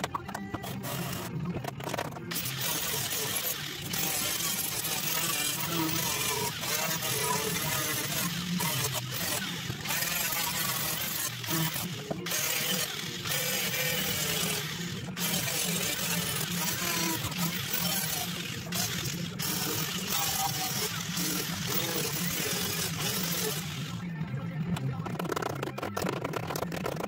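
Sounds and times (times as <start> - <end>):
angle grinder grinding metal: 0.0 - 24.0.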